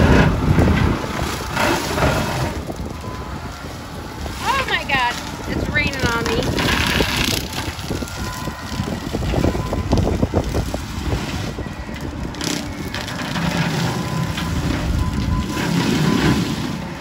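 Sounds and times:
wood crackling and snapping: 0:00.0 - 0:17.0
engine and brush cutter drone: 0:04.4 - 0:17.0.

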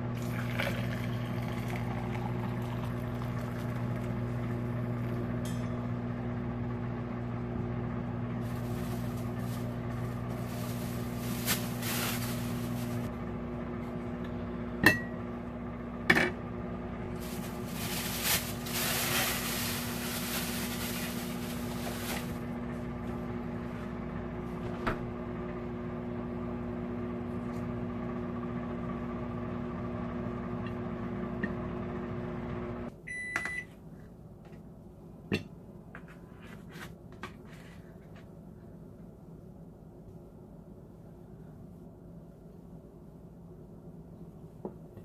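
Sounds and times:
countertop oven humming: 0:00.0 - 0:45.0
short high oven beeps: 0:33.0 - 0:33.7.

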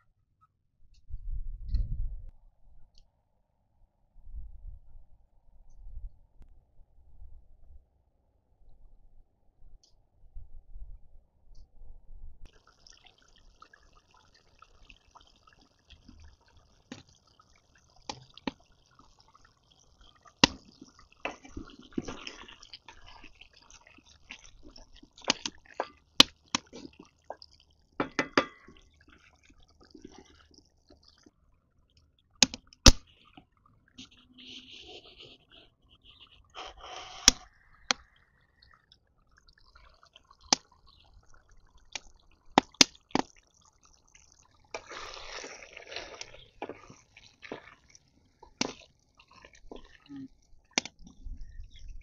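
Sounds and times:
curry bubbling in pot: 0:12.4 - 0:34.5, 0:37.2 - 0:52.0
wooden spoon stirring: 0:18.2 - 0:31.3, 0:44.8 - 0:50.1.

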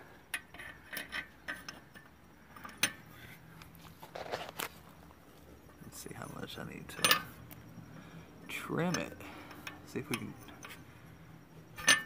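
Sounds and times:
metal flange clinking and knocking: 0:00.3 - 0:03.1, 0:06.9 - 0:07.4, 0:11.8 - 0:12.0.

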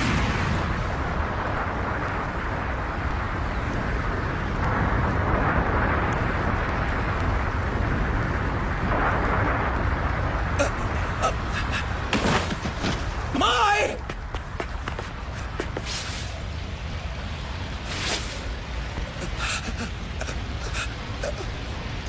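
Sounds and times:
fire rumble with rushing hiss: 0:00.0 - 0:22.0.

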